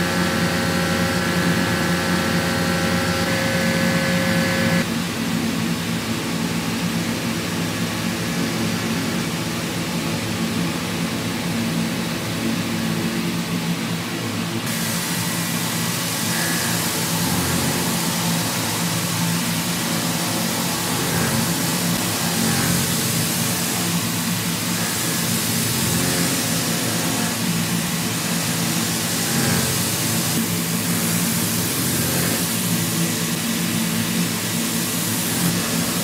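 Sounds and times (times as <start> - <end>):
machine hum: 0.0 - 5.1, 14.6 - 36.0.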